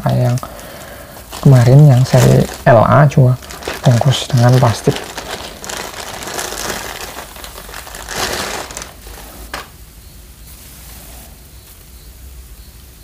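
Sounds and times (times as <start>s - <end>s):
plastic wrapping crinkling: 0.0s - 9.8s.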